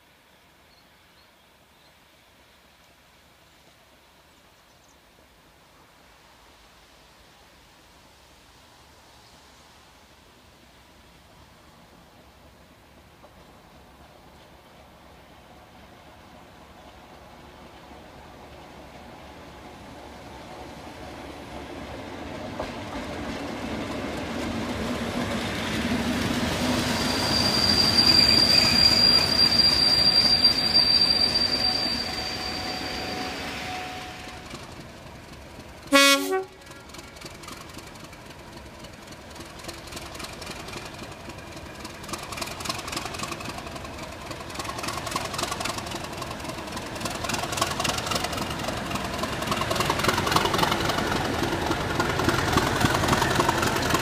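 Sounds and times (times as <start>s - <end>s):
diesel locomotive passing: 9.4s - 54.0s
high squeal of wheels: 26.6s - 34.5s
train horn blast: 31.7s - 34.6s, 35.9s - 36.8s.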